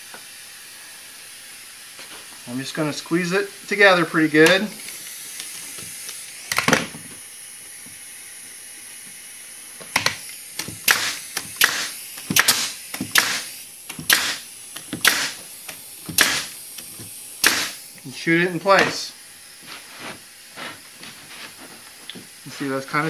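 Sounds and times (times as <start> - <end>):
brad nailer shots: 4.4 - 7.1, 9.9 - 17.8, 18.6 - 19.1
high air hiss: 10.8 - 23.0.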